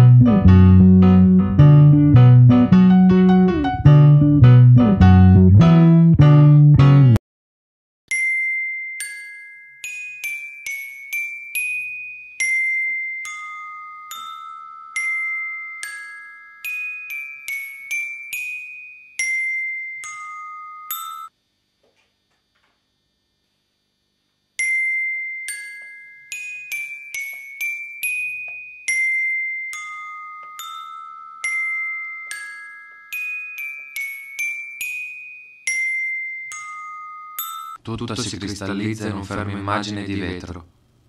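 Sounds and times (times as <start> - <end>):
glockenspiel-like bell melody: 8.1 - 21.4, 24.6 - 37.8.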